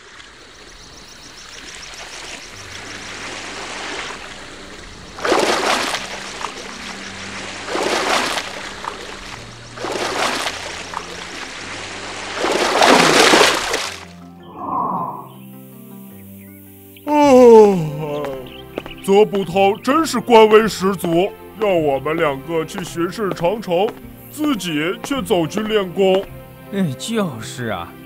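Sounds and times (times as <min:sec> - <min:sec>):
water surging against a hull: 0:01.4 - 0:14.1
background music with bass notes: 0:04.4 - 0:28.0.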